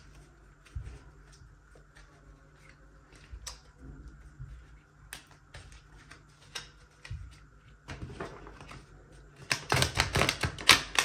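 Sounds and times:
cards being shuffled: 0:04.6 - 0:11.0.

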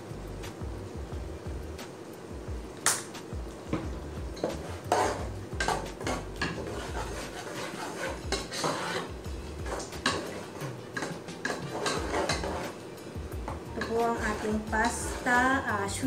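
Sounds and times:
metal spoon scraping a pot: 0:04.4 - 0:12.8, 0:13.8 - 0:15.5.

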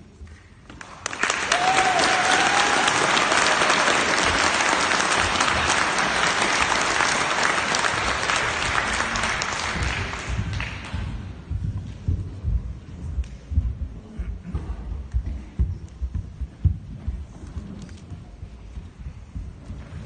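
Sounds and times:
audience applauding: 0:00.8 - 0:11.1.

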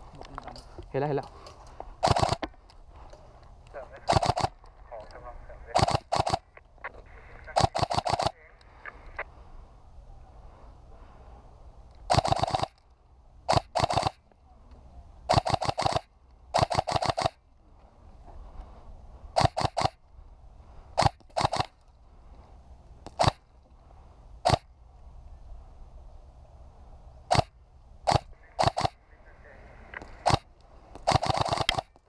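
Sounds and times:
airsoft rifle shots: 0:02.0 - 0:02.6, 0:04.0 - 0:04.6, 0:05.7 - 0:06.5, 0:07.5 - 0:08.4, 0:12.1 - 0:12.8, 0:13.5 - 0:14.2, 0:15.3 - 0:17.4, 0:19.4 - 0:20.0, 0:21.0 - 0:21.8, 0:23.1 - 0:23.4, 0:24.4 - 0:24.7, 0:27.3 - 0:29.0, 0:30.0 - 0:32.0.

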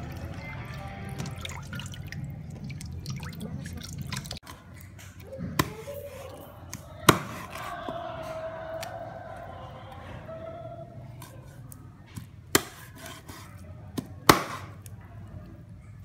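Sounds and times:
tap water running: 0:00.0 - 0:04.4
water sloshing in steel bowl: 0:00.0 - 0:07.8.

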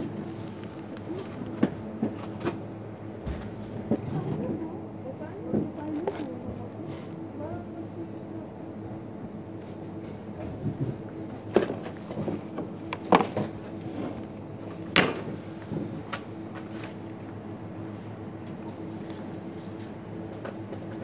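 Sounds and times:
steady background hum: 0:00.0 - 0:21.0.

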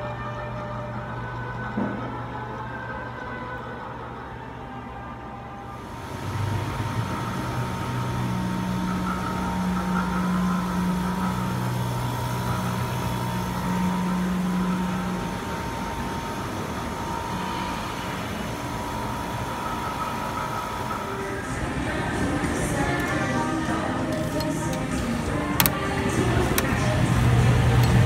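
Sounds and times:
low hum: 0:05.7 - 0:28.0
air conditioner fan rushing: 0:05.8 - 0:28.0.

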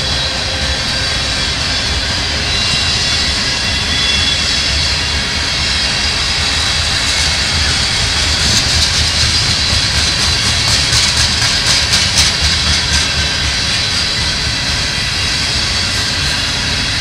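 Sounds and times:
wheels rumbling on rail: 0:00.0 - 0:17.0
high steady whine: 0:05.0 - 0:15.9.

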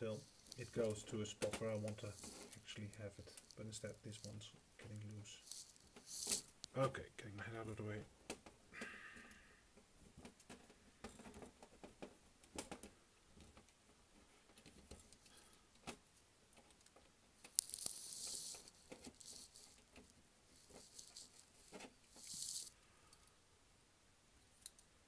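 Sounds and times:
small clicks and rattles of model gears: 0:00.0 - 0:06.7, 0:16.6 - 0:23.3.

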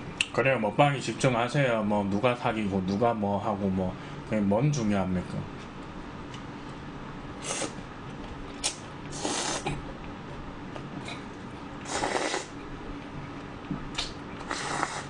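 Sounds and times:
noodles being slurped: 0:08.6 - 0:09.8, 0:11.8 - 0:12.5, 0:14.4 - 0:15.0.

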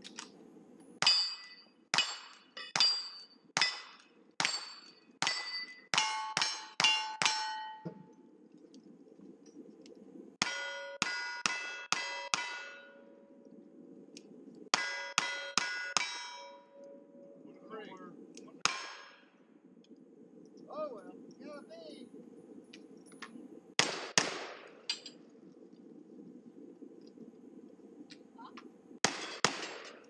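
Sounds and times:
bullets ringing off steel targets: 0:01.0 - 0:08.0, 0:10.4 - 0:13.2, 0:14.7 - 0:17.0, 0:18.6 - 0:19.2, 0:29.0 - 0:30.0
rifle shots: 0:23.8 - 0:24.9, 0:29.0 - 0:30.0.

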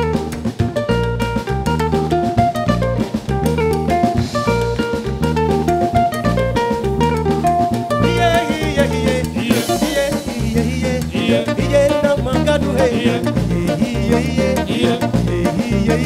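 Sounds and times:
bass guitar: 0:00.0 - 0:16.0
drum kit: 0:00.0 - 0:16.0
electric guitar: 0:00.0 - 0:16.0
voices singing: 0:08.0 - 0:16.0.

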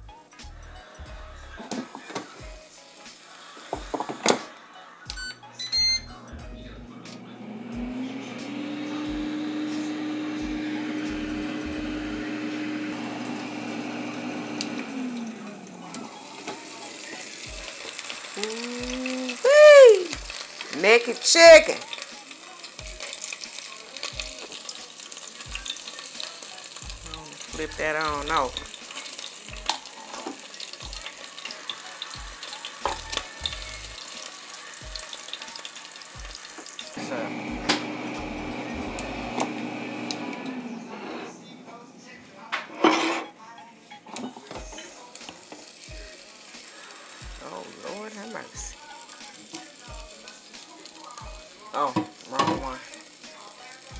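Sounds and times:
chicken sizzling and crackling: 0:00.0 - 0:05.1, 0:06.7 - 0:41.1, 0:44.1 - 0:53.9
air fryer fan humming: 0:05.1 - 0:42.0, 0:44.4 - 0:53.9
fan hum: 0:06.4 - 0:15.8, 0:37.0 - 0:41.6
air fryer basket click: 0:37.6 - 0:38.0.

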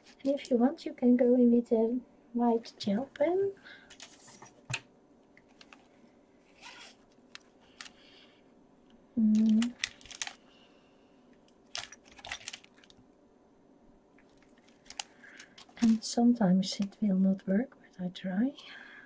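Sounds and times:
pens and paper rustling: 0:03.9 - 0:04.8, 0:05.4 - 0:05.9, 0:06.5 - 0:08.1, 0:09.2 - 0:10.4, 0:11.7 - 0:13.0, 0:14.2 - 0:17.0.

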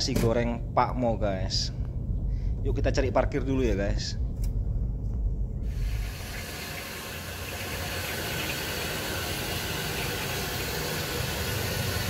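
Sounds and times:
steady hissing noise: 0:05.6 - 0:12.0.

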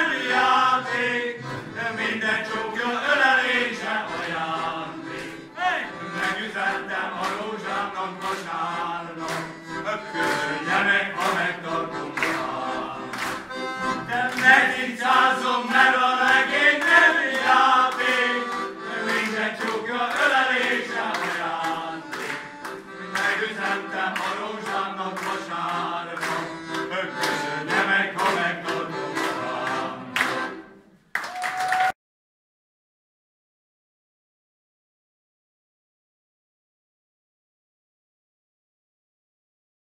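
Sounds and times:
male choir singing folk song: 0:00.0 - 0:30.6
piano accordion: 0:00.0 - 0:30.8.

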